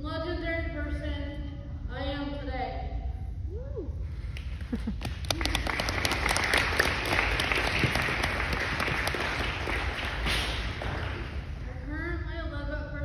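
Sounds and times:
audience applauding: 0:04.6 - 0:11.6.

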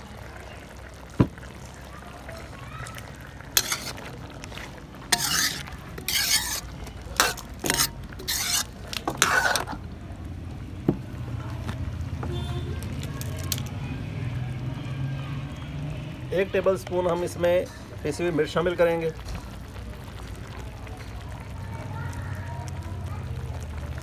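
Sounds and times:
ladle scraping metal pan: 0:03.4 - 0:09.8.

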